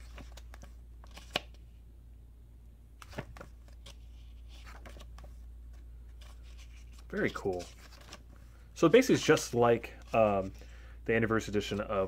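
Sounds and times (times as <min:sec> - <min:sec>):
book pages turning: 0:00.0 - 0:01.6, 0:03.0 - 0:10.6.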